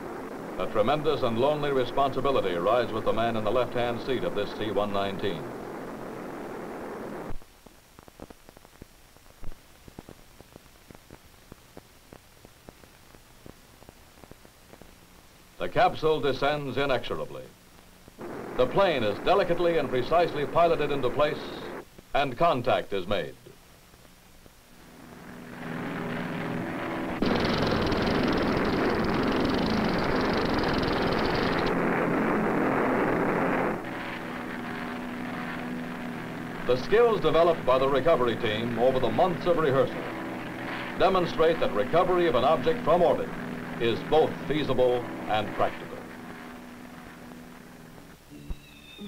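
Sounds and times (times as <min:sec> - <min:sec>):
noisy drone: 0:00.0 - 0:07.4, 0:18.1 - 0:22.4, 0:24.4 - 0:49.0
old film soundtrack hiss: 0:00.0 - 0:49.0.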